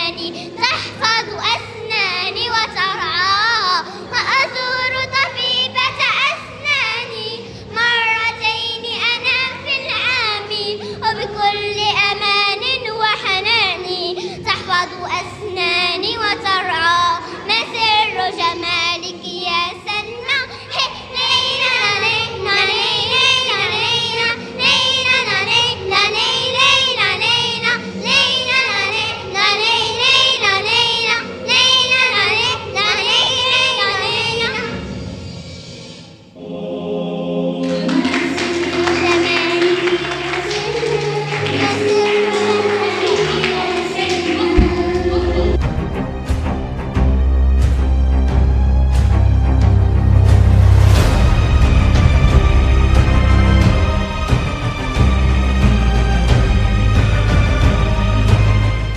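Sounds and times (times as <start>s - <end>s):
girls singing together: 0.0s - 34.5s, 36.4s - 45.6s.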